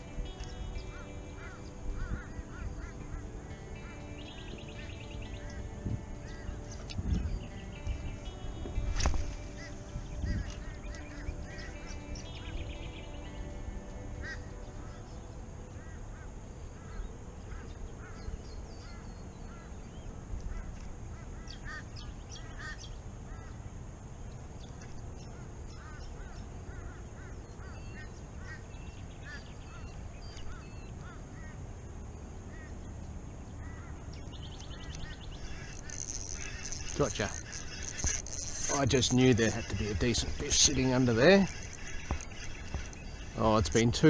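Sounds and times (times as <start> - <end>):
birds chirping and squawking: 0.0 - 23.7, 24.5 - 44.0
steady high hiss: 0.0 - 44.0
wind rumble on microphone: 5.4 - 11.8.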